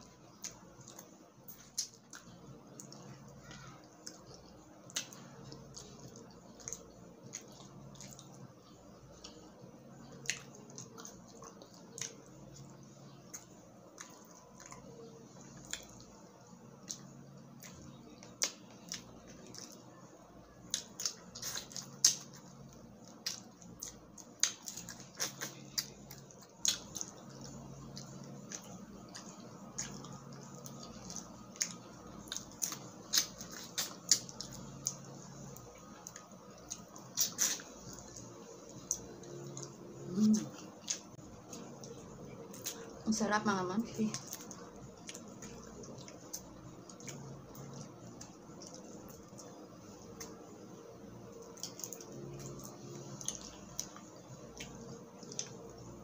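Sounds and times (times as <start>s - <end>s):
wet chewing: 0.0s - 43.2s, 43.8s - 56.0s.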